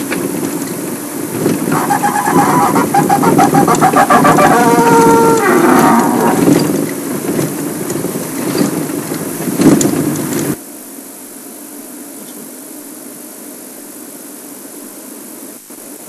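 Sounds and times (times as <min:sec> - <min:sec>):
lions growling and snarling: 0:01.7 - 0:06.8
loud rough lion call: 0:01.7 - 0:06.8.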